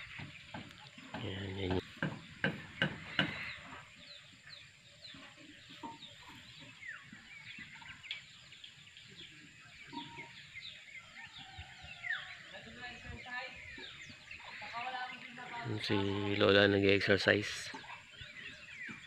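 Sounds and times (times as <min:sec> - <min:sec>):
chickens clucking: 0:00.0 - 0:12.2, 0:13.7 - 0:19.0
small birds chirping: 0:00.0 - 0:19.0
sharp knocks: 0:00.1 - 0:03.6.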